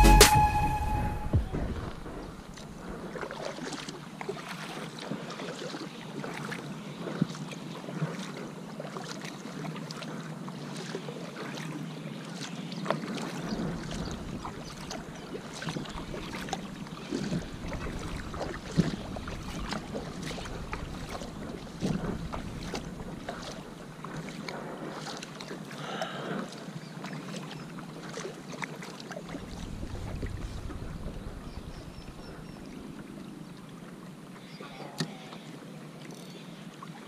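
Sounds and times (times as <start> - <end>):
water splashing and trickling: 0.0 - 37.0
wind rumble on microphone: 13.4 - 24.9, 29.2 - 33.6.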